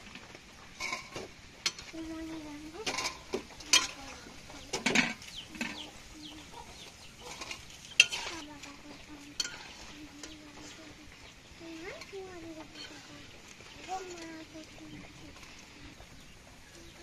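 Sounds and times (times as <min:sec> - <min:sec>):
oil sizzling: 0:00.0 - 0:17.0
metal clanks: 0:00.2 - 0:02.0, 0:02.8 - 0:05.9, 0:07.2 - 0:08.4, 0:09.3 - 0:10.4
steel spoon scraping a pan: 0:00.7 - 0:16.0.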